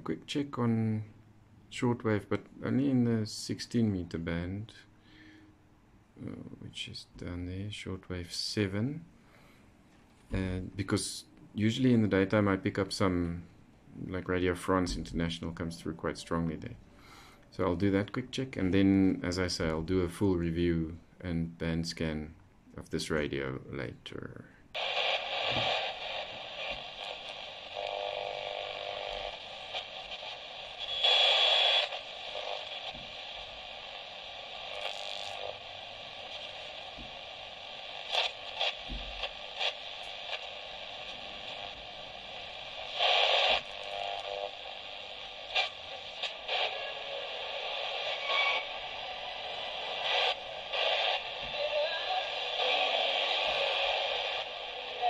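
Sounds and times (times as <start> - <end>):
radio static and hiss: 10.3 - 16.8, 17.5 - 55.0.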